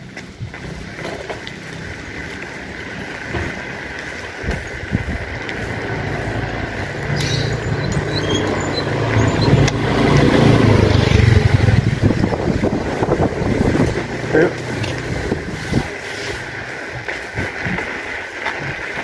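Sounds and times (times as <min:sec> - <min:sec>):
motor scooter engine passing by: 0:04.9 - 0:16.7.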